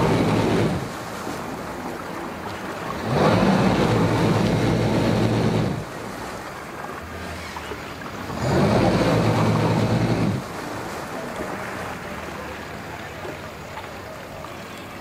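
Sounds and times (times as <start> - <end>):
outboard motor revving and idling: 0.0 - 1.0, 2.8 - 6.0, 7.0 - 10.6
water lapping: 0.0 - 15.0.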